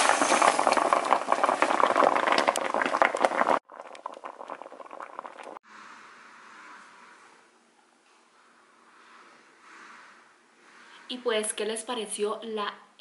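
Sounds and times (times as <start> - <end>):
broth bubbling in a frying pan: 0.0 - 5.6.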